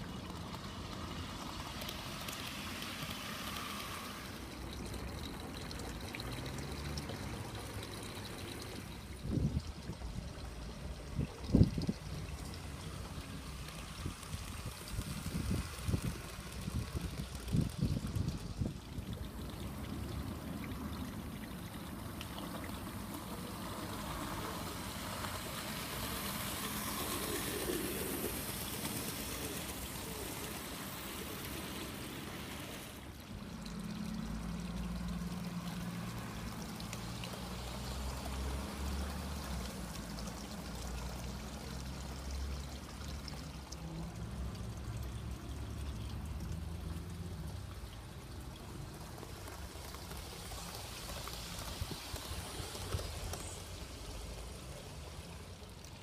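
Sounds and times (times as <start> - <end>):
steady hiss: 0.0 - 33.8, 47.0 - 56.0
model train motor and wheels: 0.0 - 56.0.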